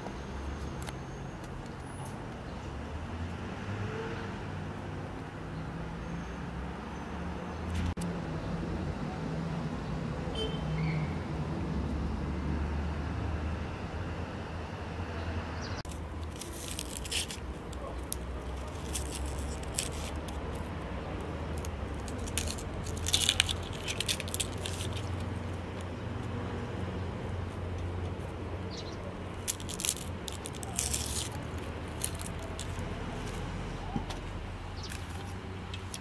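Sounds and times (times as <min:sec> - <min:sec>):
knife peeling onion skin: 0:15.9 - 0:25.3, 0:29.3 - 0:33.6.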